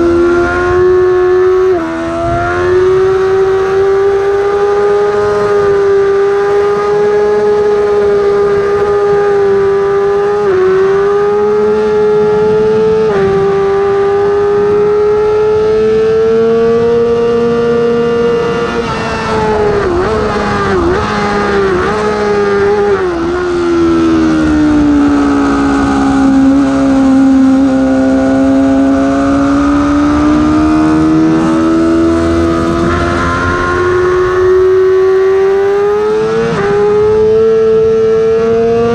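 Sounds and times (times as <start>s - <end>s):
wind rush: 0.0s - 6.7s, 16.9s - 38.1s
motorcycle engine at high revs: 0.0s - 38.9s.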